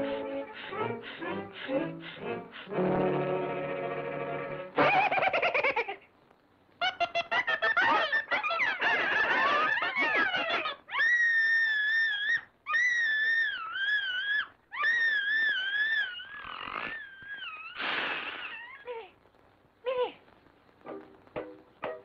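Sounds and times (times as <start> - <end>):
cartoon chickens squawking: 6.8 - 18.9
cartoon mouse screaming: 9.8 - 18.9.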